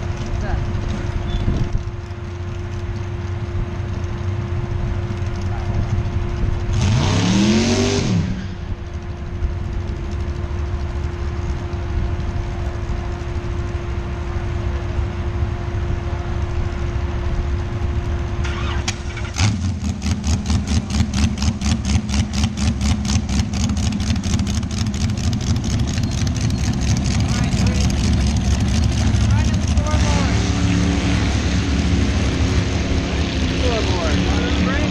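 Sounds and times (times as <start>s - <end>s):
engine idling with pulsing beat: 0.0s - 6.7s, 20.0s - 30.5s
race car engine revving: 5.3s - 8.7s, 18.4s - 34.9s.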